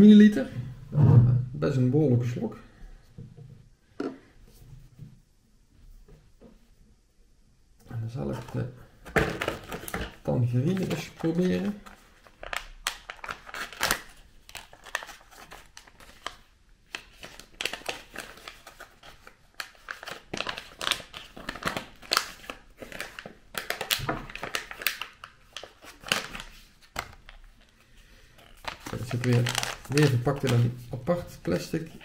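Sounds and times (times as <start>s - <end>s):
plastic packaging crinkling: 8.4s - 32.0s.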